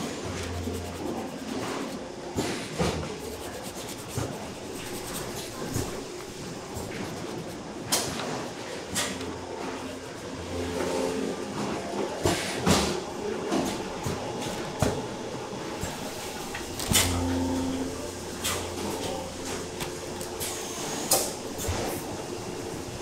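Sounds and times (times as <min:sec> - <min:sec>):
machinery humming: 0:00.0 - 0:23.0.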